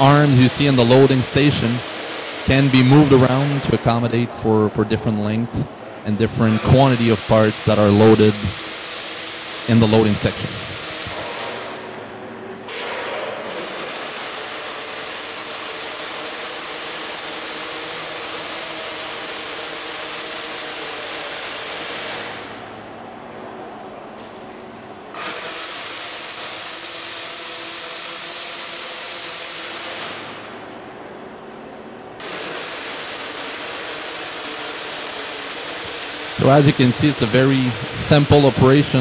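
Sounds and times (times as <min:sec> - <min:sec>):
arc welding hiss and crackle: 0:00.0 - 0:03.6, 0:06.4 - 0:11.7, 0:13.4 - 0:22.5, 0:25.1 - 0:30.4, 0:32.2 - 0:39.0
faint machine hum: 0:00.0 - 0:25.2, 0:30.0 - 0:39.0.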